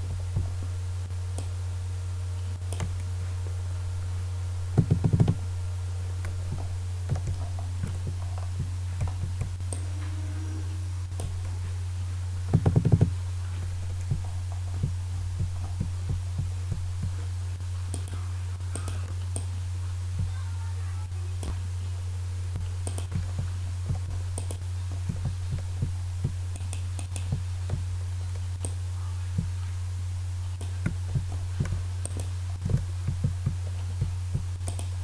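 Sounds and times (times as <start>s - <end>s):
low electrical hum: 0.0s - 35.0s
computer mouse clicks: 2.7s - 3.1s, 17.9s - 19.5s, 24.4s - 24.6s, 26.5s - 27.8s, 31.6s - 32.8s, 34.6s - 35.0s.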